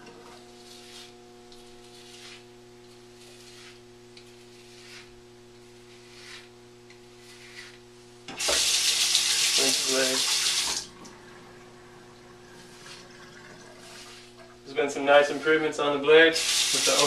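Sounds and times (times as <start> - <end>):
steady electrical hum: 0.0 - 17.0
razor scraping over scalp: 0.6 - 7.8
tap water running: 8.3 - 14.7, 16.3 - 17.0.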